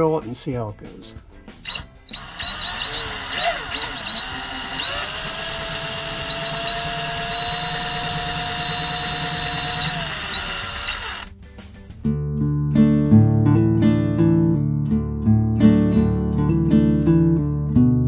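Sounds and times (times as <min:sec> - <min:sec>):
cordless drill whining: 0:01.5 - 0:11.3
strummed acoustic guitar music: 0:11.4 - 0:18.0.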